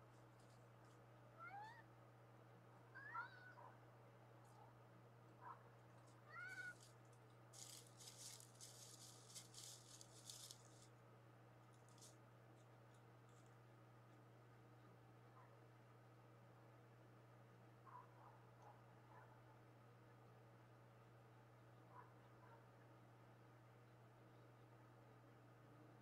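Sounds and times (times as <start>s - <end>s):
crackling rustle: 0.0s - 1.1s, 5.5s - 11.0s, 11.6s - 14.2s
cat meowing faintly: 1.4s - 1.9s, 2.9s - 3.7s, 6.2s - 6.8s.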